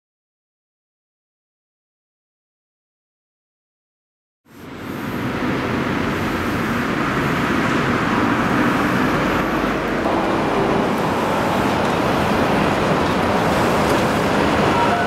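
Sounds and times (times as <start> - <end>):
road traffic passing: 4.5 - 15.0.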